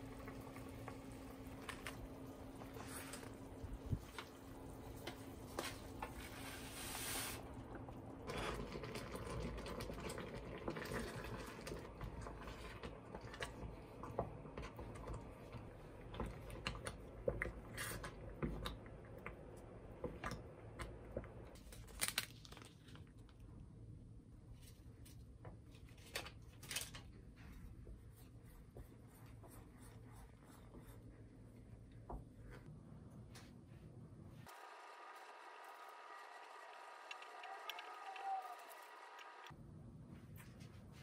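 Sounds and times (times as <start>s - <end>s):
wet food noises: 0.0s - 21.5s.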